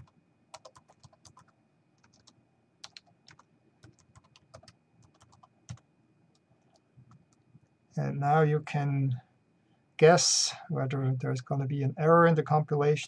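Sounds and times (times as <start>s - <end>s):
faint keyboard typing: 0.0s - 7.8s.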